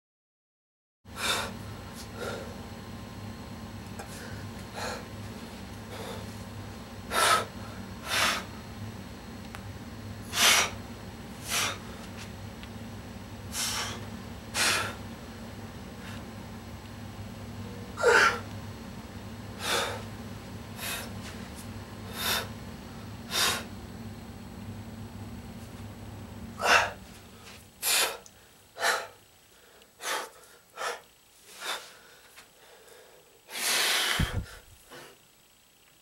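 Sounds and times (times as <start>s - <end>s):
man's sharp forceful breaths: 1.1s - 2.6s, 7.1s - 8.5s, 10.3s - 10.8s, 11.4s - 11.9s, 13.5s - 15.0s, 20.8s - 21.2s, 22.1s - 22.6s, 23.3s - 23.7s, 26.6s - 35.2s
steady low hum: 1.1s - 36.0s.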